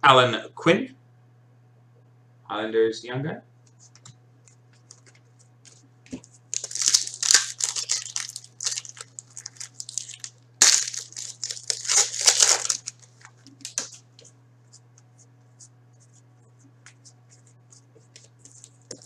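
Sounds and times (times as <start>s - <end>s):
foil wrapper tearing and crinkling: 6.5s - 14.0s.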